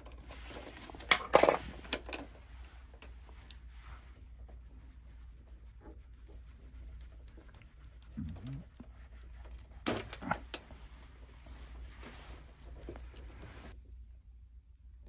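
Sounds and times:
wires rustling: 0.0 - 13.8
steady low hum: 0.0 - 15.0
low murmur: 3.6 - 13.8.

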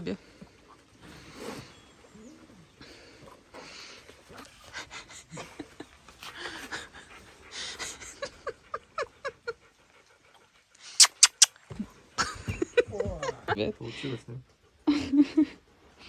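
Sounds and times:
dog panting: 0.0 - 16.0
short squeaky sounds: 11.0 - 11.6.

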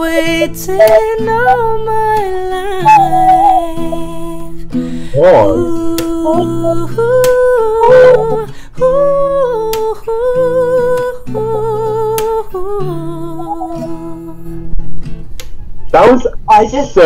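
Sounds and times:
man humming a melody: 0.0 - 1.8, 2.6 - 4.4, 5.1 - 9.8, 10.4 - 14.6
acoustic guitar chords: 0.0 - 16.9.

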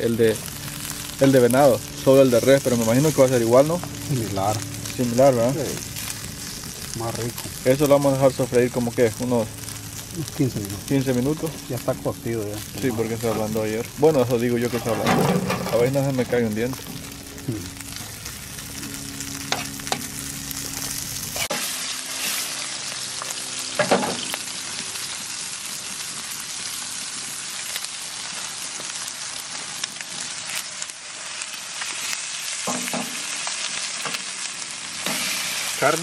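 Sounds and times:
low steady hum: 0.0 - 25.5
meat sizzling in hot oil: 0.0 - 36.0.

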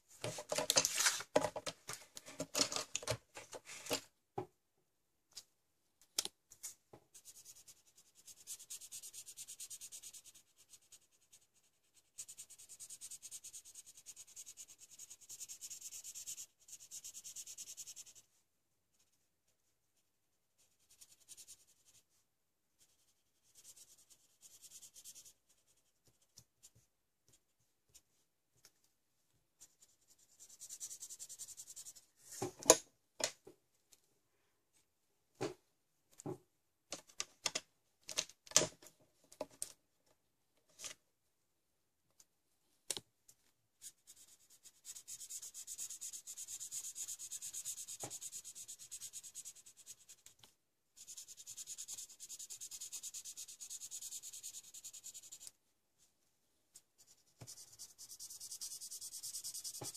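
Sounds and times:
marker scratching on paper: 43.8 - 50.3, 51.0 - 55.5, 57.0 - 59.9.

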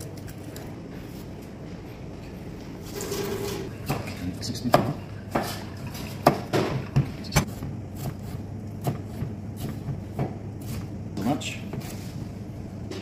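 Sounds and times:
steady low hum: 0.0 - 13.0
kitchen knocks and clatter: 3.0 - 7.5.

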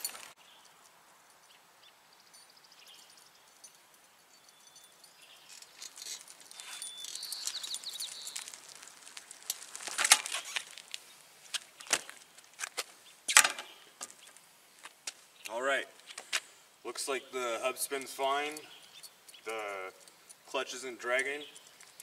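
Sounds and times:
bicycle tyres rolling on wet asphalt: 6.5 - 12.6.

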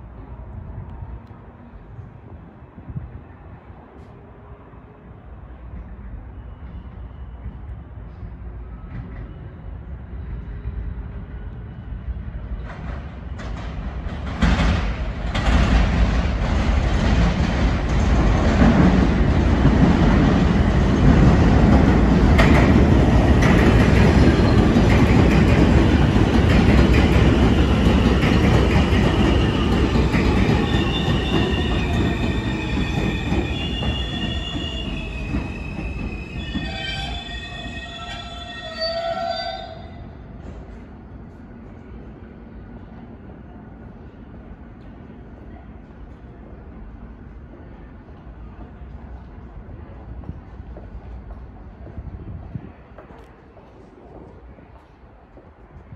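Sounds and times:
subway train rumbling: 0.0 - 55.9
high-pitched wheel squeal: 30.6 - 40.1.

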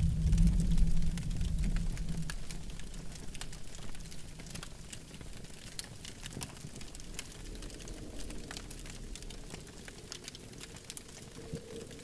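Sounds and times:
low rumble: 0.0 - 4.1, 6.7 - 10.1
campfire crackling and popping: 0.0 - 12.0.

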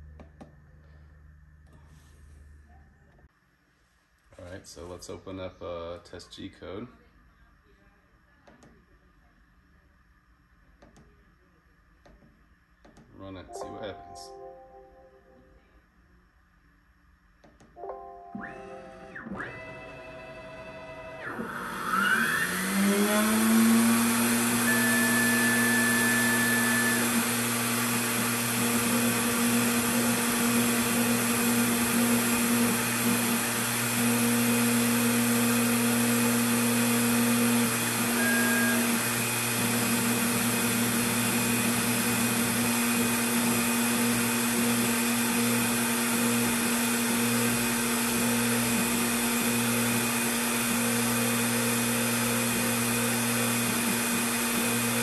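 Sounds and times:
spindle motor whine: 18.3 - 55.0
higher-pitched axis motor whines: 18.6 - 55.0.

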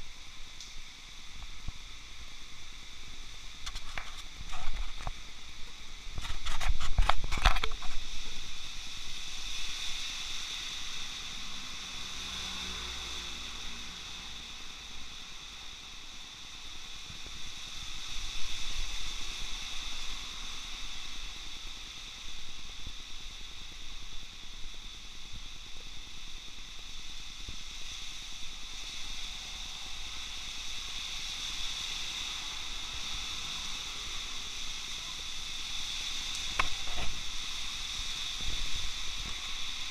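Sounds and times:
heavy rain on wet street: 0.0 - 39.9
vehicles passing on wet road: 8.9 - 22.2, 28.7 - 39.9.

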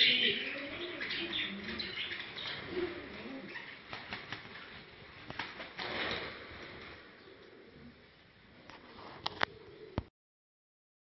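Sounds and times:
pigeon cooing: 0.0 - 3.9, 6.4 - 10.1
wings flapping: 1.2 - 7.2.

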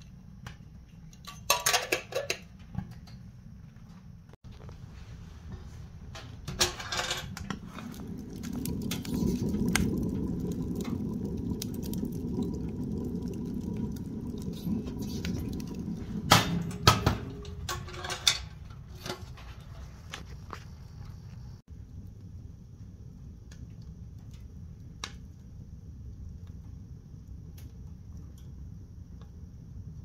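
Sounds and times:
fire crackling: 4.4 - 30.0
fire popping: 5.5 - 30.0
low rumble: 7.3 - 17.9.

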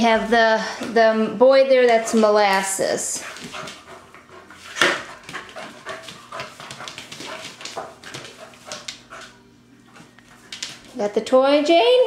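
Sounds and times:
puppies scuffling on hard floor: 1.9 - 11.0.

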